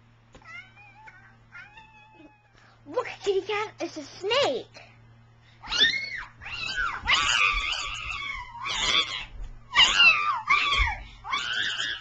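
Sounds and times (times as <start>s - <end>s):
cat-like yowls and screeches: 5.6s - 12.0s.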